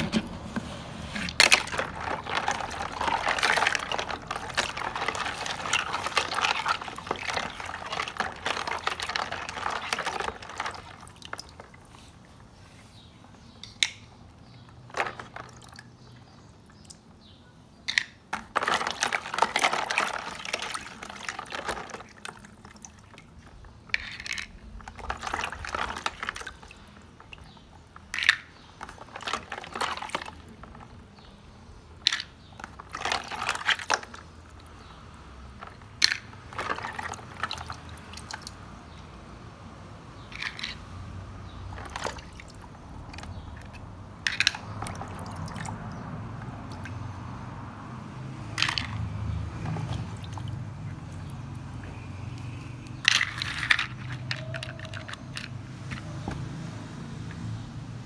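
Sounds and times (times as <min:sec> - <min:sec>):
water splashing in a tub: 0:00.0 - 0:12.3, 0:14.8 - 0:17.2, 0:18.3 - 0:31.4, 0:32.5 - 0:39.0, 0:40.2 - 0:58.0
water dripping: 0:33.9 - 0:39.1, 0:42.0 - 0:47.7, 0:48.7 - 0:53.0.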